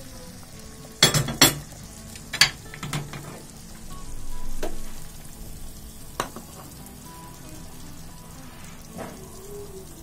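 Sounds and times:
butter sizzling in a pan: 0.0s - 10.0s
soup simmering: 0.0s - 10.0s
kitchenware clinking: 1.0s - 3.5s, 6.2s - 6.8s.

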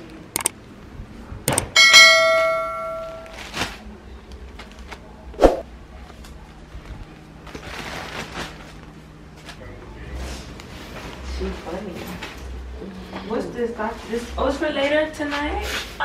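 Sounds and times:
metallic clang: 1.5s - 3.3s.

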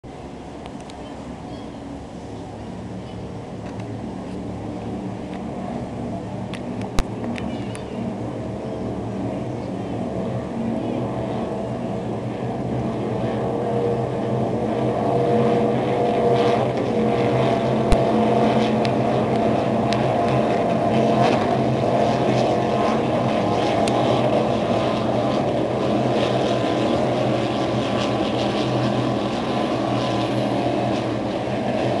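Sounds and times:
powerboat engines droning: 0.1s - 32.0s.

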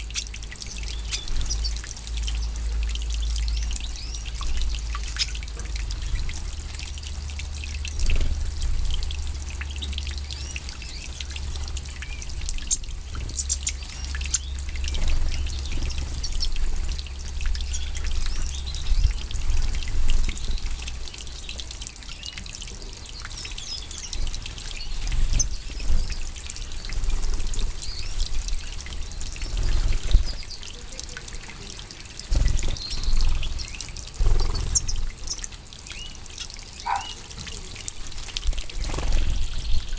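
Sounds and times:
water trickling and splashing: 0.0s - 39.9s
birds chirping: 9.6s - 16.6s, 32.6s - 37.4s.

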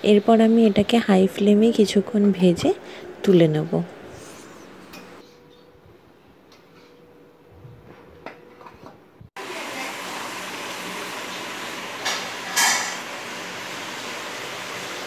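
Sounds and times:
steel bowl clinking: 12.0s - 13.1s.

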